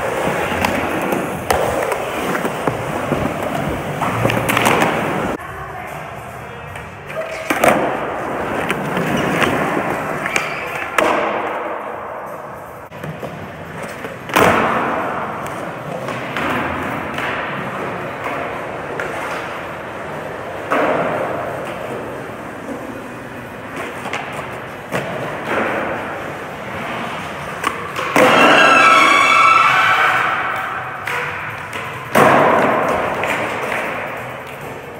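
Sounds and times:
skateboard wheels rolling on concrete: 0.0s - 34.9s
skateboard grinding with squeal: 8.3s - 11.0s, 28.0s - 30.9s
skateboard thumps and landings: 32.1s - 34.0s.

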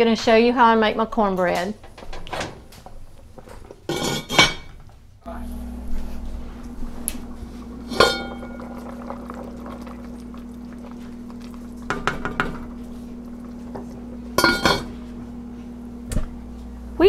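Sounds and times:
pot lid clanking: 3.9s - 4.8s, 7.9s - 8.8s, 11.9s - 12.8s, 14.4s - 14.9s
spoon knocking against pot: 11.9s - 12.7s.

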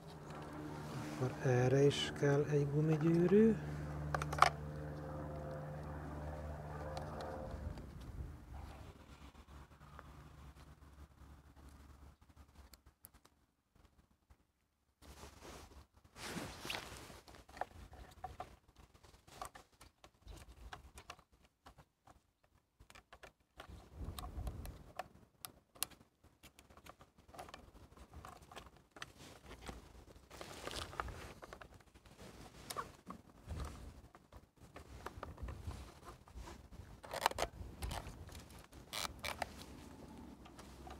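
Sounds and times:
small clicks and rustles of handling: 0.0s - 40.9s.

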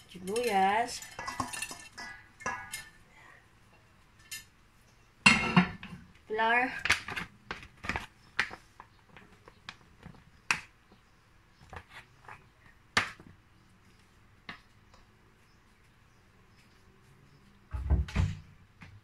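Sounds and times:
utensils clicking on metal bowl: 0.0s - 3.0s.

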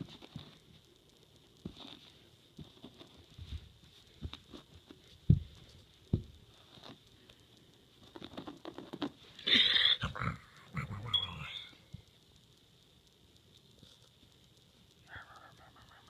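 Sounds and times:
kitten playing on carpet: 0.0s - 9.4s.

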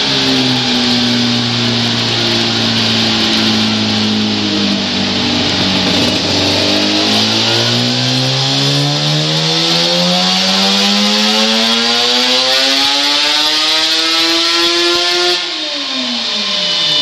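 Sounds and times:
motorcycle engine revving on a dyno: 0.0s - 17.0s.

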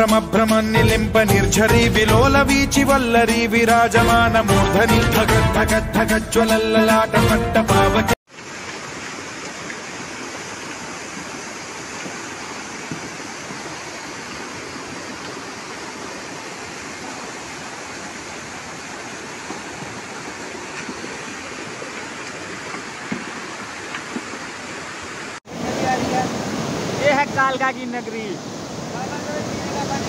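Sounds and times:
floodwater rushing over road: 8.3s - 30.0s.

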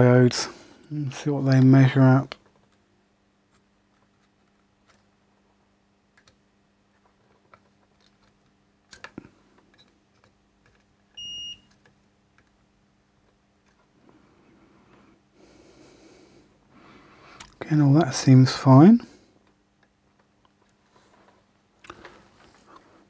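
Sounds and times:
multimeter beep: 11.2s - 11.7s.

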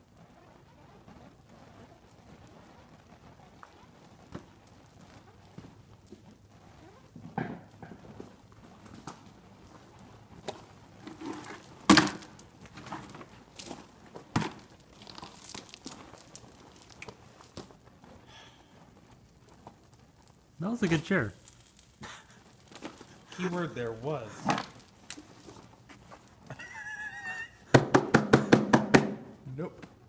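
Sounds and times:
fire crackling and popping: 0.0s - 30.0s
sharp knocks: 27.7s - 29.3s.

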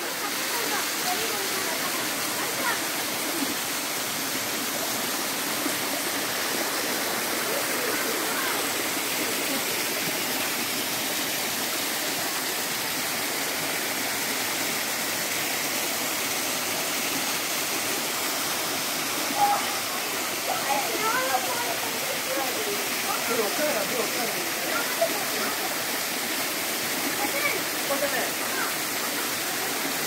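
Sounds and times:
waterfall rushing: 0.0s - 30.0s.

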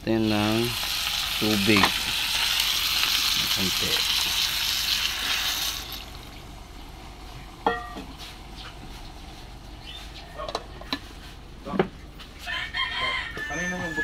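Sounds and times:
food sizzling in a pot: 0.0s - 6.6s.

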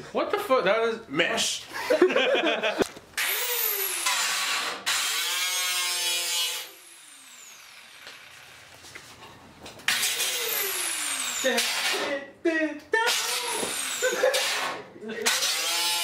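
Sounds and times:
power tool whirring: 3.2s - 8.8s, 9.8s - 12.1s, 13.1s - 16.0s.

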